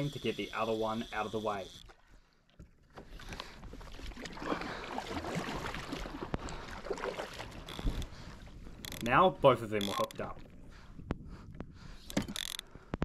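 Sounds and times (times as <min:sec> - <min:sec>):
water splashing against kayak: 0:01.8 - 0:09.0.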